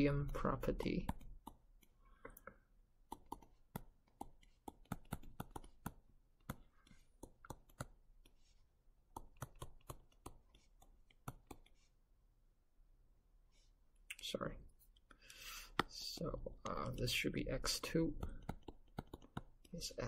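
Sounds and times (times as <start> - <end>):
stylus tapping touchscreen: 0.0 - 11.9, 14.9 - 19.9
pen scratching: 3.0 - 12.0, 15.8 - 19.7.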